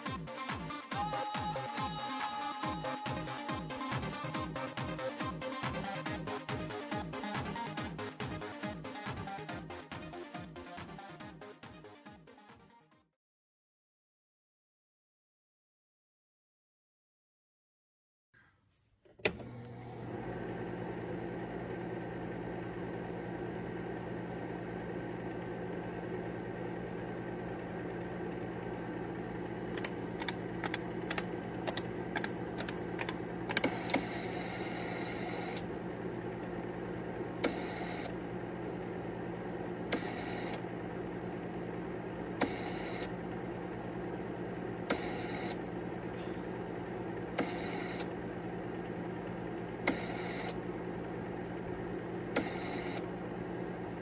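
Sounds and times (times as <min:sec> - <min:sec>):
computer fan humming: 0:01.0 - 0:07.8, 0:19.3 - 0:54.0
clicking keystrokes: 0:29.7 - 0:34.0.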